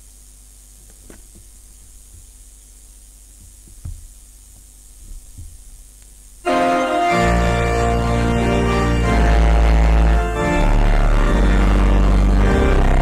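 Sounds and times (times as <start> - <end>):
steady low hum: 0.0 - 13.0
soft knocks: 3.4 - 5.8
recorded hymn music: 6.4 - 13.0.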